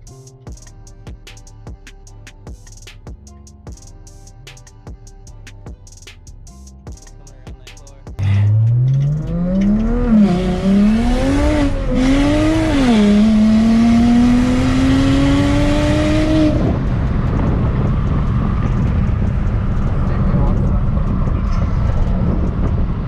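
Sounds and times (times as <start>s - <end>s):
car engine accelerating: 8.2s - 23.0s
tyre and wind noise: 16.0s - 23.0s.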